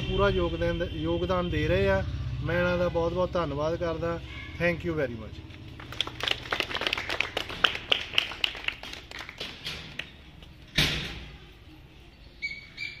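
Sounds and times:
people clapping: 0:05.7 - 0:10.4.

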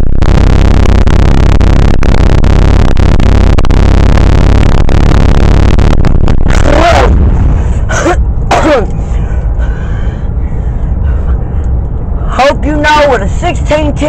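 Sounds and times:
loud distorted rushing noise: 0:00.0 - 0:09.8.

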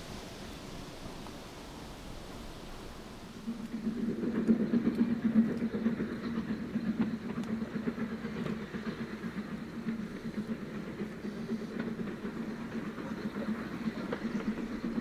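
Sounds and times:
steam train rumbling: 0:00.0 - 0:15.0.

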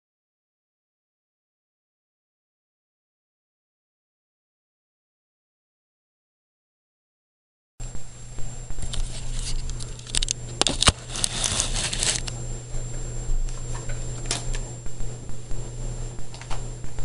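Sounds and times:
faint high whine: 0:07.8 - 0:17.0
steady low hum: 0:07.8 - 0:17.0
rustling handling noise: 0:08.8 - 0:12.3.

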